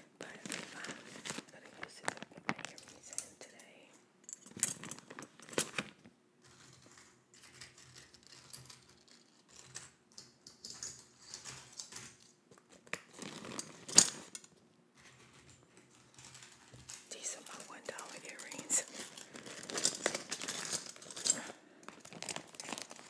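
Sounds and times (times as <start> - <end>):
plastic bag crinkling: 0.2 - 3.3, 4.5 - 6.0, 12.8 - 14.4, 15.9 - 23.0.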